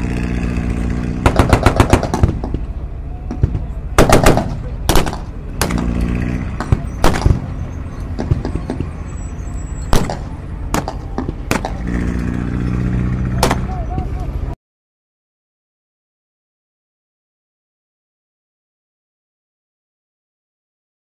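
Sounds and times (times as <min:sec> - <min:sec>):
engine running: 0:00.0 - 0:14.6
steady low rumble: 0:00.0 - 0:14.6
gunshots and bangs: 0:01.2 - 0:02.6, 0:04.0 - 0:06.0, 0:06.6 - 0:07.5, 0:09.9 - 0:12.1.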